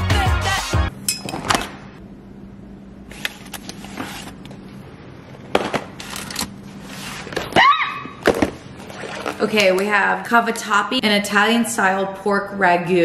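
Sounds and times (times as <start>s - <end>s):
steady low hum: 0.9s - 7.4s
plastic trays knocking and rustling: 5.5s - 6.0s.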